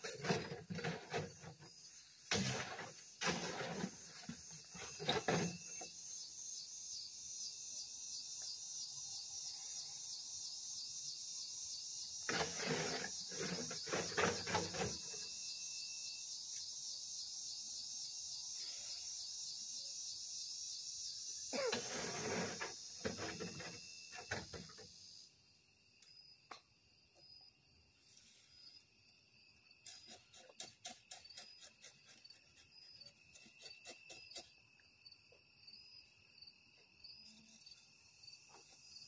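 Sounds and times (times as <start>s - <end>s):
hoe scraping concrete mix: 0.0s - 5.8s, 12.2s - 15.2s, 21.6s - 24.6s
insect chorus trilling: 0.0s - 26.6s, 27.2s - 39.0s.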